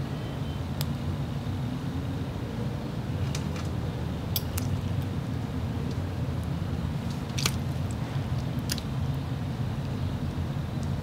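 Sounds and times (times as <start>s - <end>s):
frog snapping wet clicks: 7.3s - 7.6s, 8.4s - 8.9s.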